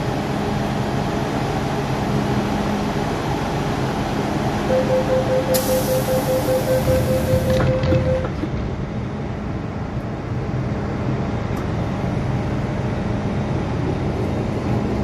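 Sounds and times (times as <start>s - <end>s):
train hum: 0.0s - 15.0s
rapid door warning beeps: 4.7s - 8.4s
hiss: 5.6s - 6.7s.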